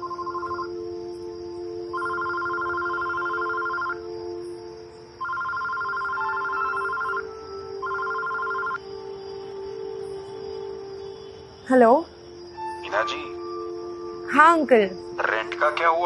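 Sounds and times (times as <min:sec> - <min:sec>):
mobile phone ringing: 0:00.0 - 0:00.8, 0:01.9 - 0:04.1, 0:05.2 - 0:08.8
soft background music: 0:00.0 - 0:16.0.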